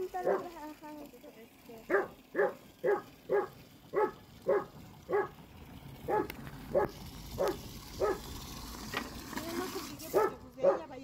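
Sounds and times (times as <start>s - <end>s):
dog barking: 0.2s - 0.5s, 1.9s - 5.4s, 6.1s - 8.2s, 10.1s - 10.9s.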